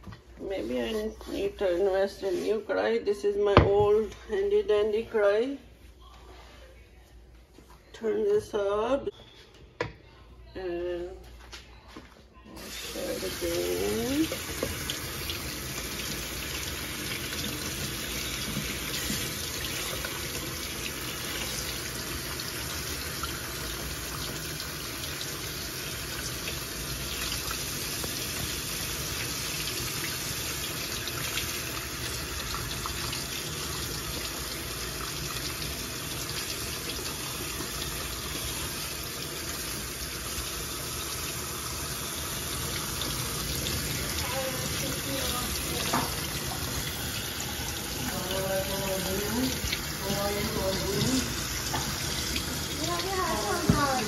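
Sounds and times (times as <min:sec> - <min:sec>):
tap water running: 0:12.5 - 0:54.0
water splashing on chicken in sink: 0:41.2 - 0:54.0.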